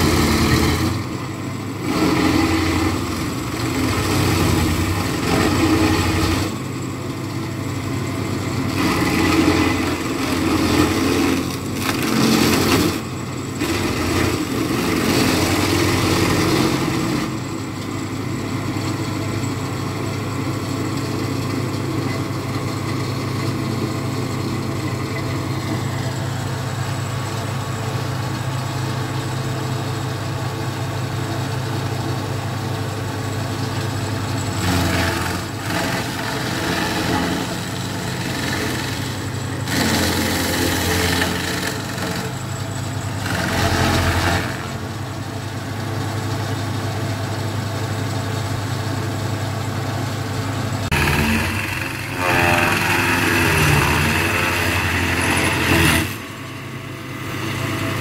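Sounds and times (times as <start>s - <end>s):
harsh grinding of wood: 0.0s - 17.5s, 34.4s - 45.0s, 50.8s - 56.6s
stump grinder engine running: 0.0s - 58.0s.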